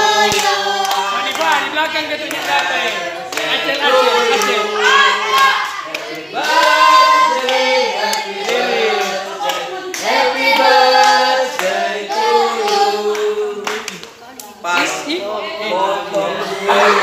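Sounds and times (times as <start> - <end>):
children and adults singing: 0.0 - 17.0
hand-clapping: 0.2 - 3.7, 5.3 - 6.8, 7.4 - 11.8, 12.6 - 14.9.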